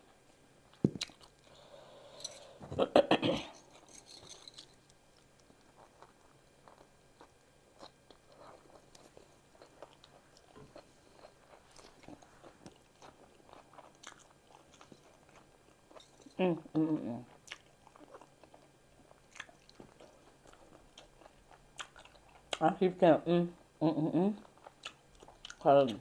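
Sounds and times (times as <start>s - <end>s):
chewing with wet smacks: 0.7s - 1.4s, 5.2s - 16.1s, 17.2s - 22.7s, 24.4s - 26.0s.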